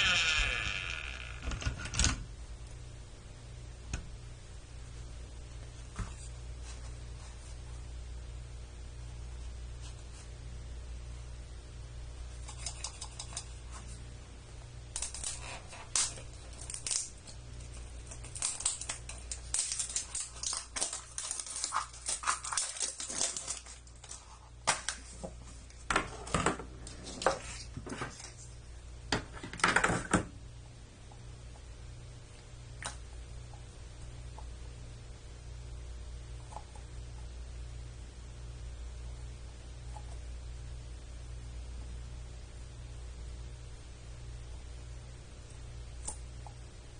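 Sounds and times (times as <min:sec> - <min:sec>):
steady low hum: 0:00.0 - 0:46.9
plastic wrap crinkling: 0:14.9 - 0:25.9.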